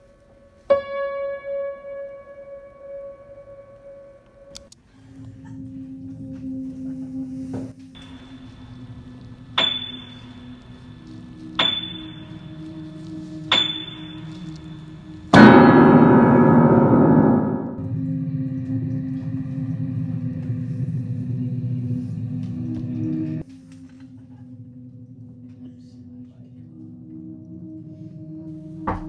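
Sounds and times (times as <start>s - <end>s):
low drone: 0.0s - 28.8s
sharp hits with ringing tone: 9.6s - 11.0s, 11.6s - 18.1s
loud crashing hit: 15.4s - 17.9s.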